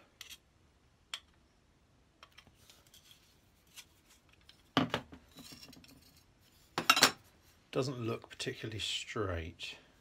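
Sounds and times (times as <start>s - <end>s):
screwdriver clicks and scrapes: 0.2s - 0.5s.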